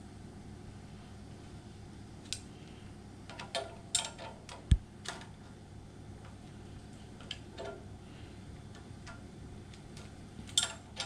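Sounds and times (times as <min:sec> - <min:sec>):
hand tools clicking on metal: 0:08.7 - 0:11.0.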